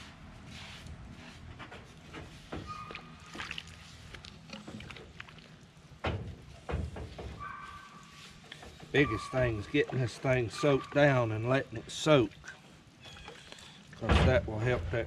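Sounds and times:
water sloshing: 2.6s - 6.6s.

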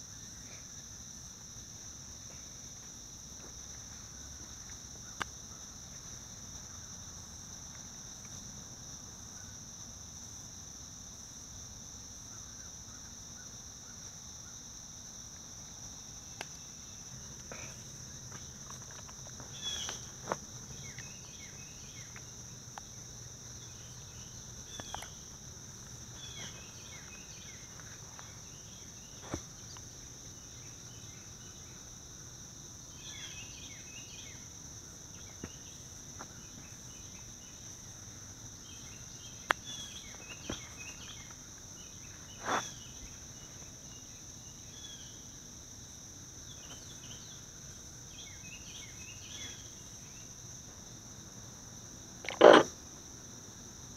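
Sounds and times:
insects droning: 0.0s - 53.9s
sharp clicks or knocks: 52.2s - 52.7s.

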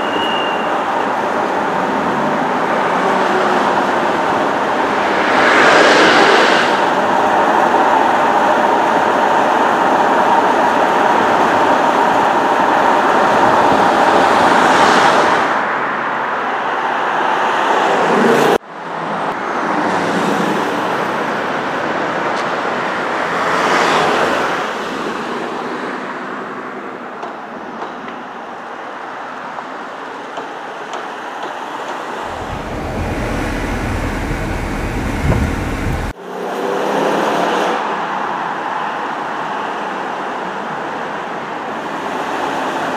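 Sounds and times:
car engine driving by: 32.2s - 36.2s
deep low rumble: 32.2s - 36.2s.

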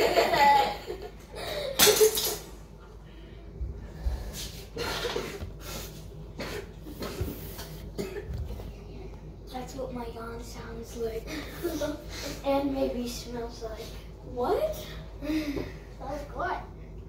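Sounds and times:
child breathing and voice sounds: 14.8s - 16.3s.

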